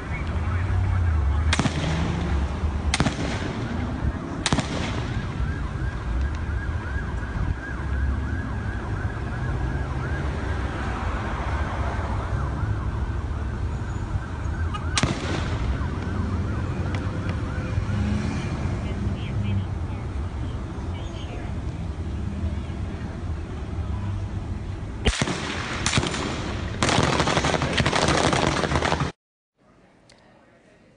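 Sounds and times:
gunshots: 0:01.4 - 0:05.6, 0:14.9 - 0:15.9, 0:25.0 - 0:29.2
emergency siren yelping: 0:02.1 - 0:22.6.

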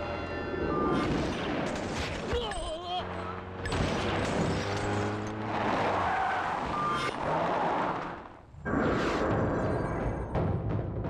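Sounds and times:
car engine noise: 0:00.0 - 0:09.4
tyres skidding: 0:01.8 - 0:09.3.

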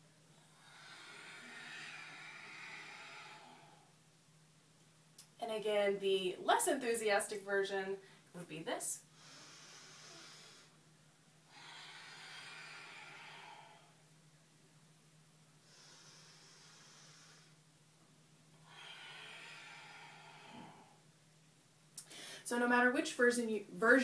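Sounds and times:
faint low hum: 0:00.0 - 0:24.0
woman breathing slowly: 0:00.2 - 0:04.0, 0:09.0 - 0:14.2, 0:15.5 - 0:17.7, 0:18.5 - 0:21.2, 0:22.0 - 0:22.5.

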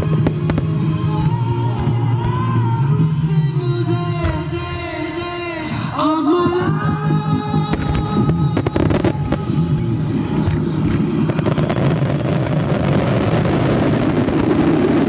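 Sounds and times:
fireworks crackling: 0:00.0 - 0:02.7, 0:07.7 - 0:15.0.

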